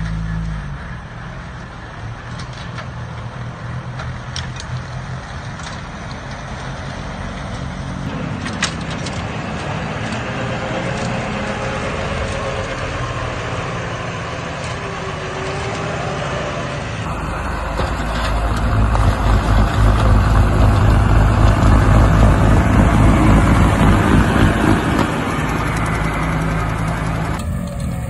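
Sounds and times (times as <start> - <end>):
tractor engine with snowblower: 0.0 - 28.0.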